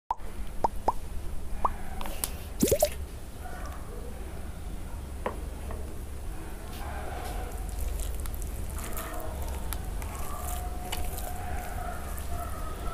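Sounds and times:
liquid dripping: 2.6 - 3.0
liquid plop: 2.6 - 3.0.

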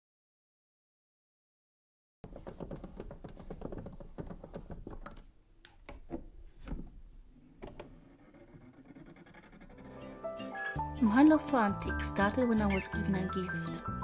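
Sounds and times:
taps and knocks on gramophone: 2.2 - 7.0.

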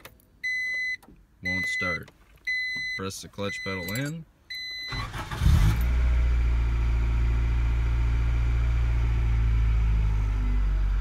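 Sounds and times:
car engine starting and idling: 4.9 - 11.0.

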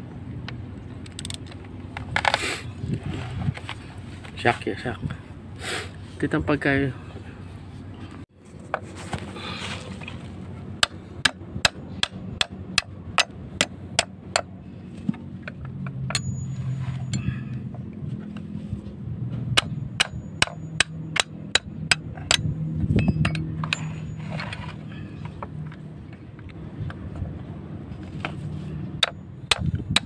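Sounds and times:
hammer striking steel: 19.6 - 24.2.

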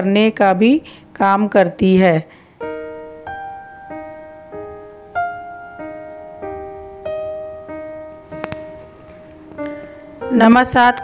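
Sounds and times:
slow solo piano: 2.6 - 11.0.

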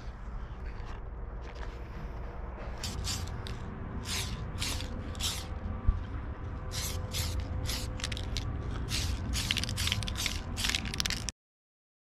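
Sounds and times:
low hum: 0.0 - 11.3
spray paint hissing: 2.8 - 5.5, 6.7 - 11.3.

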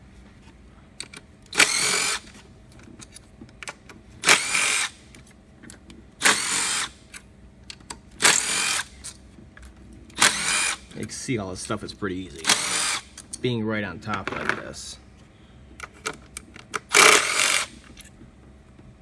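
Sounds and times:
cordless driver spinning bolts: 1.0 - 2.4, 4.2 - 5.0, 8.2 - 9.2, 10.1 - 13.4, 16.3 - 18.1.

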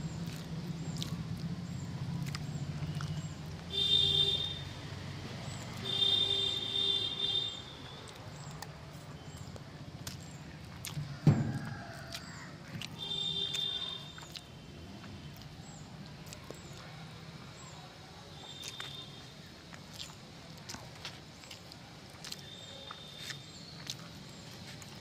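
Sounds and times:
sharp thump: 11.2 - 11.6.

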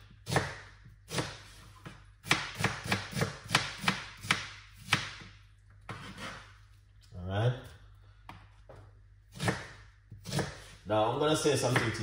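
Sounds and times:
knife chopping on cutting board: 0.2 - 5.3, 5.9 - 6.5, 9.3 - 10.8, 11.6 - 12.0.

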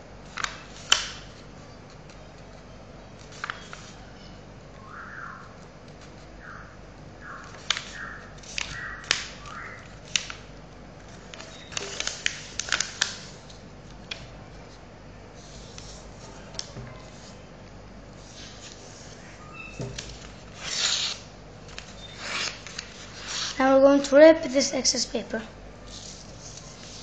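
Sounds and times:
paper folding and creasing: 0.2 - 4.0, 7.3 - 14.8, 18.2 - 19.3, 20.0 - 23.6, 25.8 - 27.0.

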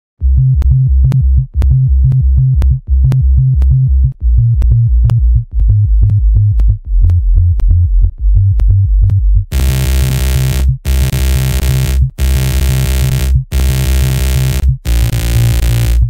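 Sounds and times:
pulsing bass line: 0.2 - 16.0
dense loud noise layer: 9.5 - 16.0
electronic dance music: 9.5 - 16.0.

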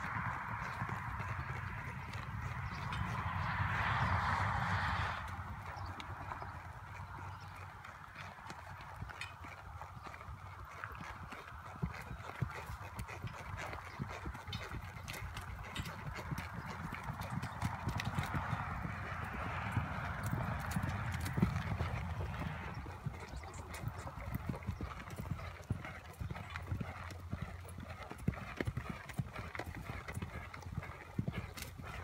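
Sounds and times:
horse hoofbeats: 0.0 - 32.0.

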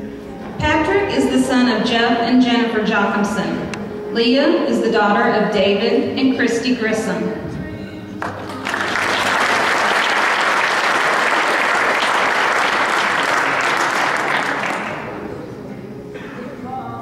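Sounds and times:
audience applauding: 8.2 - 15.2.

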